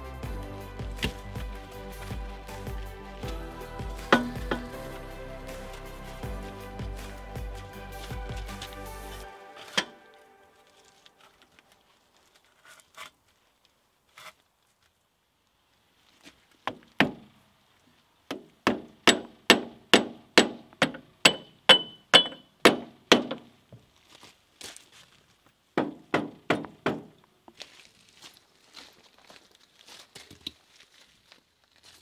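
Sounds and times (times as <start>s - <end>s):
hammer striking steel: 4.0s - 4.7s, 18.7s - 23.4s.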